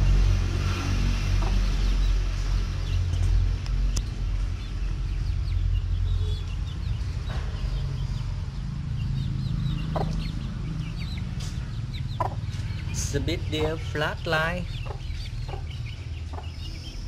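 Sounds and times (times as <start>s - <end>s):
steady low rumble: 0.0s - 17.0s
chick peeping: 1.3s - 17.0s
hen clucking: 9.8s - 10.5s, 11.2s - 16.8s.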